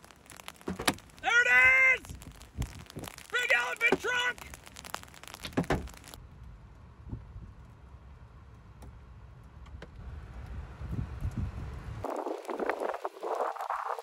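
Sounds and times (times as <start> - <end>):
wind buffeting microphone: 1.1 - 3.3, 10.2 - 14.0.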